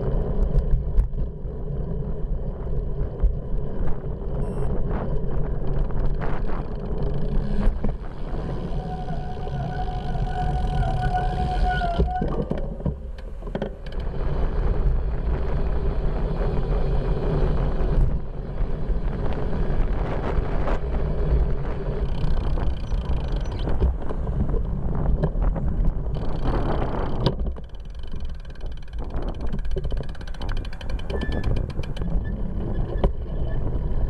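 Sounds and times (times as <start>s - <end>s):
bicycle road noise: 0.0s - 34.0s
wind rumble: 0.0s - 34.0s
sharp clicks and rattles: 25.2s - 33.3s.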